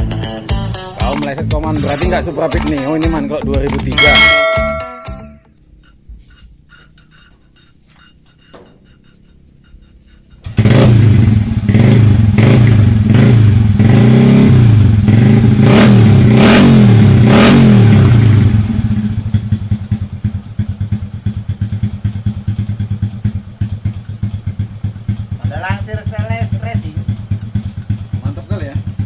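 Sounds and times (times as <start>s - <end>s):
motorcycle engine revving: 8.2s - 29.0s.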